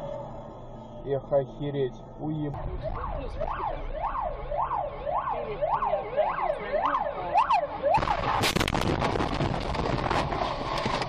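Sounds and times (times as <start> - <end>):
electronic siren wailing: 2.6 - 8.4
loud crackling noise: 7.9 - 11.0.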